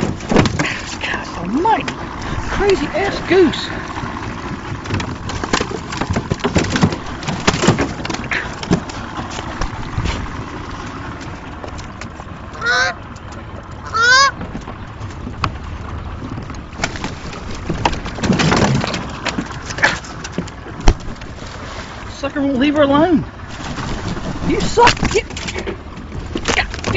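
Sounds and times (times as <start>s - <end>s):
knocks and clatter: 0.0s - 10.5s, 14.4s - 21.4s
goose honking: 12.5s - 13.0s, 13.8s - 14.4s.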